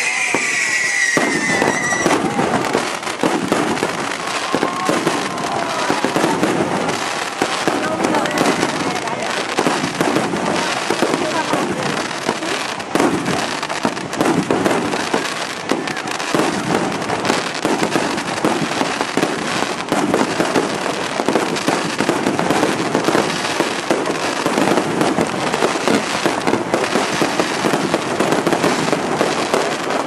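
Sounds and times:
fireworks bursting and crackling: 0.0 - 30.0.

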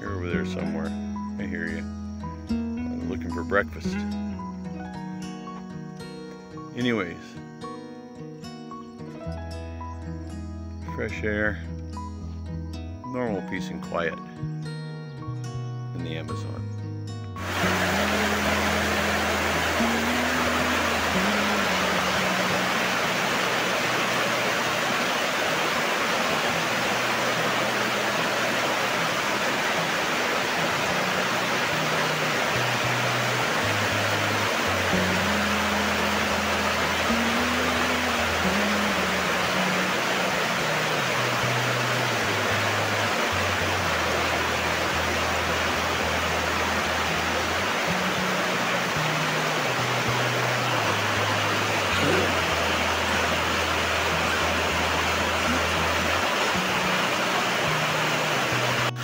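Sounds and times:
soft background music: 0.0 - 59.0
heavy rain on metal roof: 17.4 - 45.1, 49.0 - 52.7
steady rushing hiss: 17.4 - 59.0.

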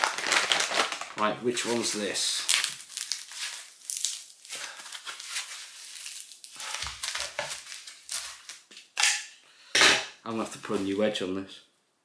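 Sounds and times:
packaging crinkling: 0.0 - 9.0.

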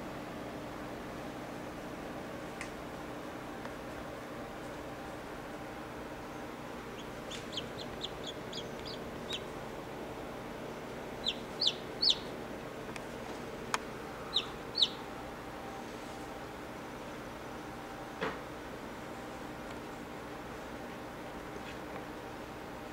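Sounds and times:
steady low hum: 0.0 - 22.9
chick peeping: 6.8 - 9.7, 11.1 - 12.4, 14.1 - 15.1.

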